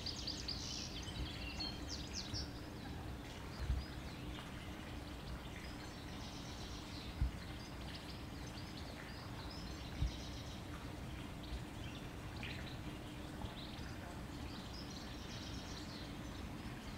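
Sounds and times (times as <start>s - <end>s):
birds chirping and singing: 0.0s - 4.5s.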